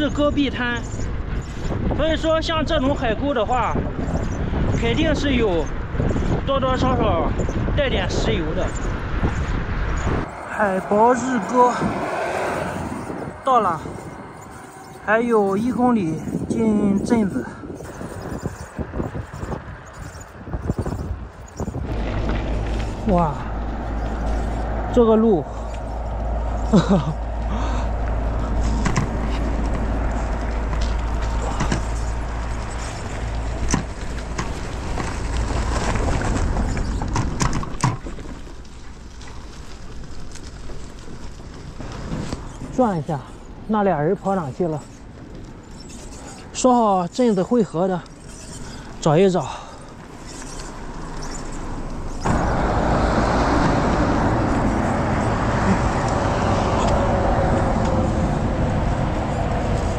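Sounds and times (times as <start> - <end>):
bicycle riding on rough road: 0.0 - 59.9
passing cars: 0.0 - 59.9
wind buffeting microphone: 0.0 - 59.9
bicycle knocks and rattles: 28.2 - 42.7.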